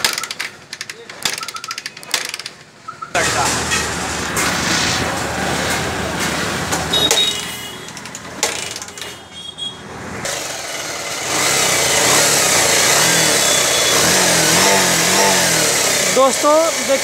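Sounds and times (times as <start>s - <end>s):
metal clicks and clinks: 0.0s - 2.7s, 7.1s - 9.2s
motorcycle engine running: 10.3s - 17.0s.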